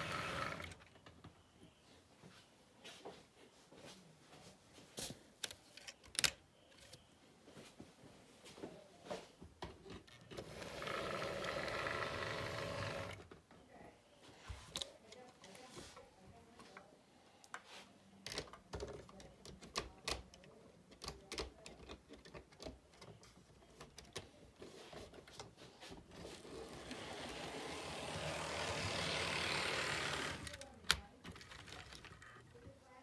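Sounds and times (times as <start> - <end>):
model train wheels clicking: 10.4 - 13.2, 26.3 - 32.2
model train whir: 10.4 - 13.2, 26.3 - 30.5.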